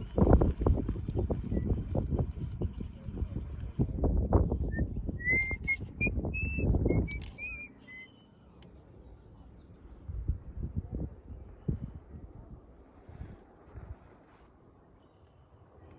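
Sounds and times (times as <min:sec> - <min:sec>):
wind rumble on microphone: 0:00.0 - 0:08.0, 0:09.6 - 0:14.8
short whistled notes: 0:04.7 - 0:08.3.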